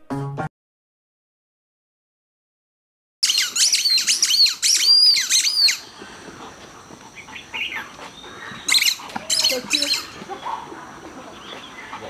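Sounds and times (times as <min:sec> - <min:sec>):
dog toy squeaking: 0:08.7 - 0:10.0.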